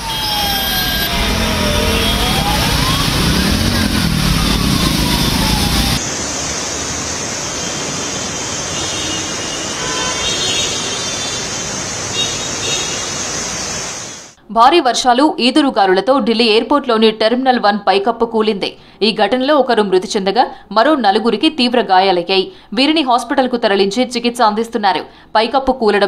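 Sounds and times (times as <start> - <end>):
tone gliding in pitch: 0.0 - 6.0
vehicle engines running: 0.0 - 8.6
heavy low rumble: 0.4 - 7.1
rain and water spray hiss: 6.0 - 14.4.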